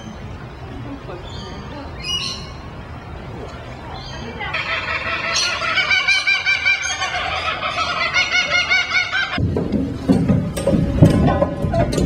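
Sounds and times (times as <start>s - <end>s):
kookaburra laughing call: 4.5s - 9.4s.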